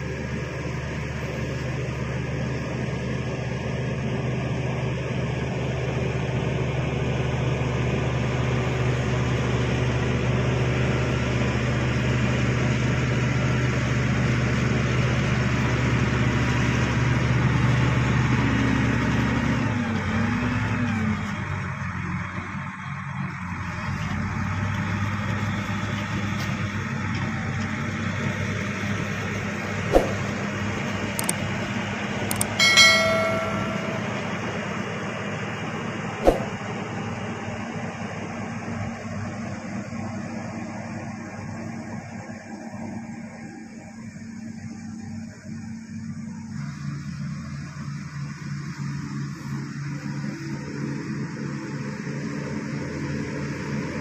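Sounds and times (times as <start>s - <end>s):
bulldozer diesel engine: 0.0s - 54.0s
sharp click: 29.9s - 30.2s, 31.2s - 31.4s, 32.3s - 34.1s, 36.2s - 36.6s.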